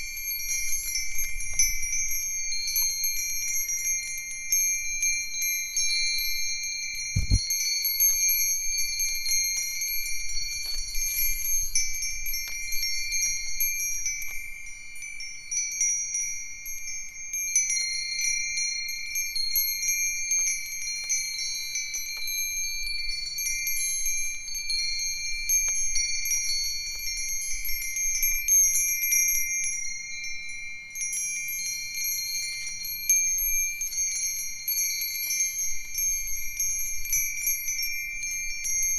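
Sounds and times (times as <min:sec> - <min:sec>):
wind chimes ringing: 0:00.0 - 0:38.9
low thump: 0:07.2 - 0:07.4.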